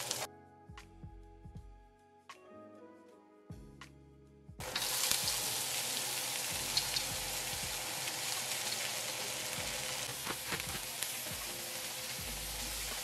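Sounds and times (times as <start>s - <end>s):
vegetables sizzling in hot oil: 0.0s - 0.3s, 4.6s - 13.0s.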